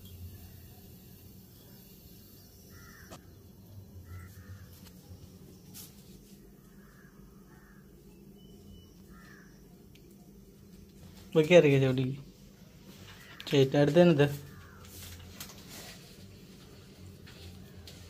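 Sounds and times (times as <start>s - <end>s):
crows cawing: 2.7s - 3.3s, 4.0s - 5.1s, 6.4s - 8.1s, 9.0s - 9.7s, 12.9s - 15.4s.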